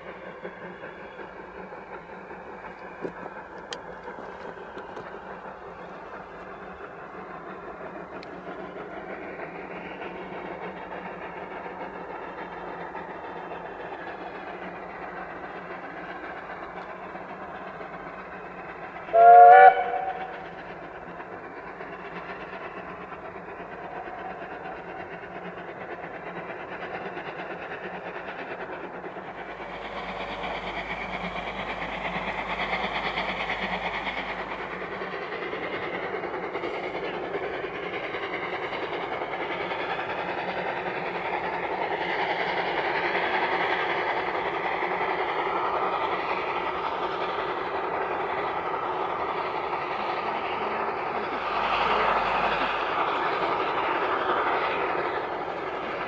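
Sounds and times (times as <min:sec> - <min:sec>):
steam train running: 0:00.0 - 0:56.0
steam locomotive whistle: 0:19.1 - 0:20.4, 0:29.4 - 0:35.0, 0:51.4 - 0:53.3.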